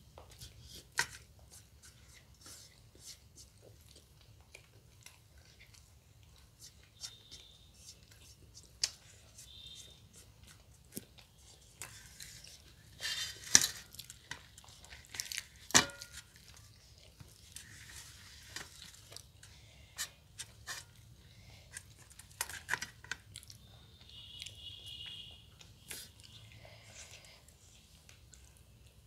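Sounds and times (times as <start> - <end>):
chewing: 2.2 - 13.0, 13.8 - 19.4, 23.1 - 24.6, 25.5 - 29.0
bread being torn: 10.5 - 19.2.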